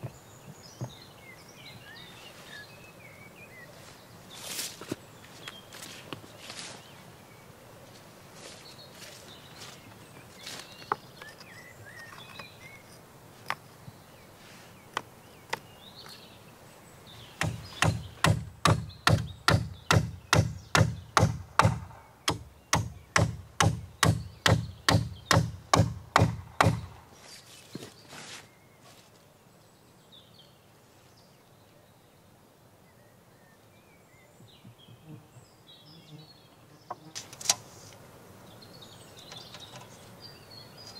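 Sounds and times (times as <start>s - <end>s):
hammer driving nails into wood: 17.4s - 26.9s
wood being handled: 39.3s - 40.0s.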